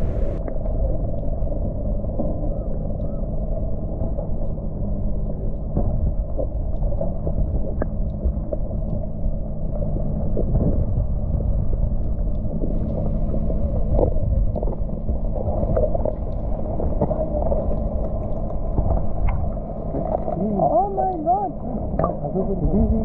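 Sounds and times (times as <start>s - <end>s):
faint underwater clicks: 0.0s - 23.0s
underwater rumble of moving water: 0.0s - 23.0s.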